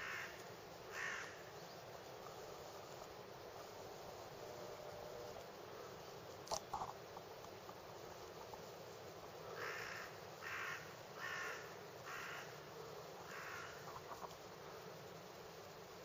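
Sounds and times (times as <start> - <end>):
crow cawing: 0.0 - 1.4, 9.6 - 12.6, 13.2 - 13.8.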